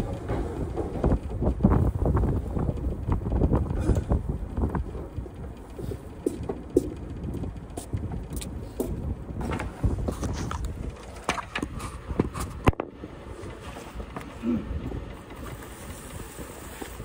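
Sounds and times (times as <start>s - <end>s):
wind rumble on microphone: 0.0s - 17.0s
boots walking on wooden deck: 4.8s - 10.2s.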